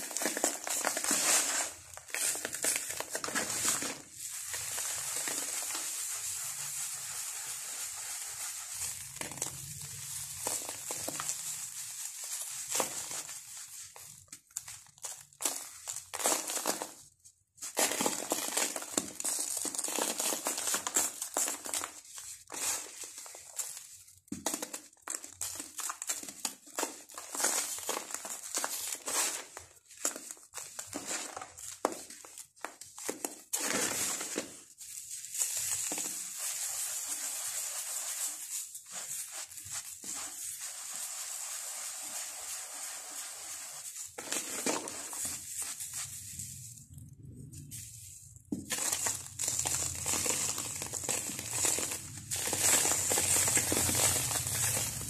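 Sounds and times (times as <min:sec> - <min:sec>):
hands crumbling dry cement mix: 0:00.0 - 0:55.0
crumbs sliding on paper: 0:00.2 - 0:16.9, 0:33.7 - 0:55.0.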